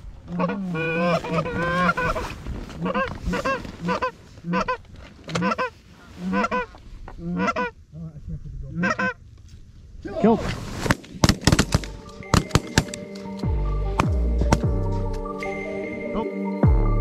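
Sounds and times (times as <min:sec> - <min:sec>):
geese honking: 0:00.3 - 0:07.8, 0:08.7 - 0:09.2.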